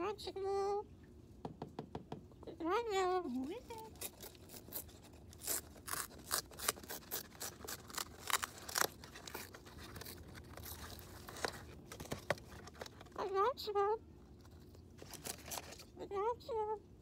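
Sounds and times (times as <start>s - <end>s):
cockatoo tearing cardboard: 3.3s - 13.3s, 14.3s - 15.9s.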